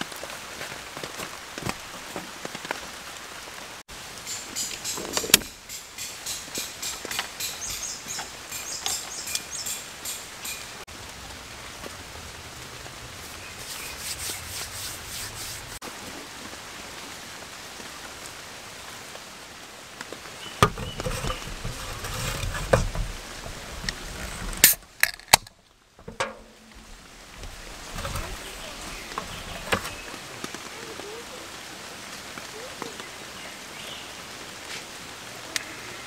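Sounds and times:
rain on forest and tarp: 0.0 - 36.0
camp gear clicks and knocks: 4.6 - 10.6, 20.6 - 30.2.

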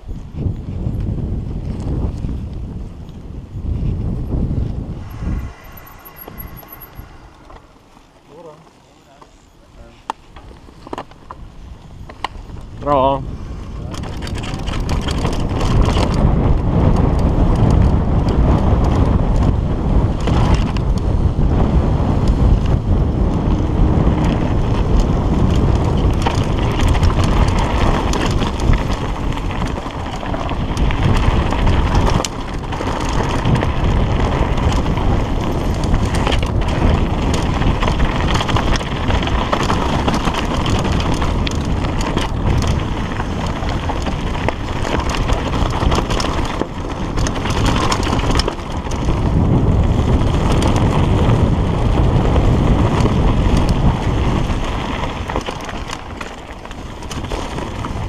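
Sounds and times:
wind buffeting microphone: 0.0 - 58.0
bike rattling and knocking: 8.4 - 58.0
tyres rushing on dirt: 21.5 - 58.0.

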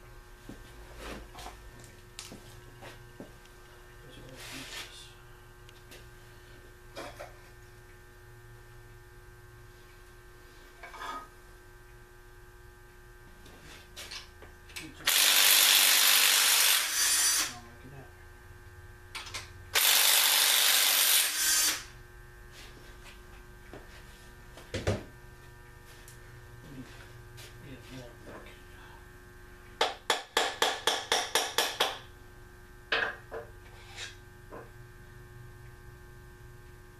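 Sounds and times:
steady electrical hum: 0.0 - 36.9
cordless power tool running: 15.0 - 17.6, 19.7 - 21.9.

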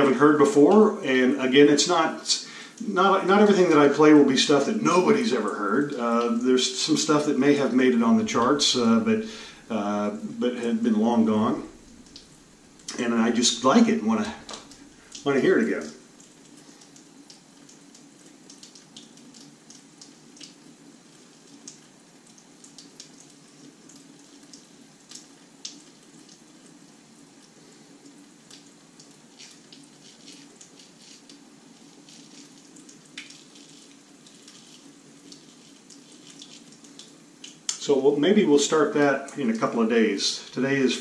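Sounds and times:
steady low hum: 0.0 - 16.4
razor scraping stubble: 29.4 - 31.4.

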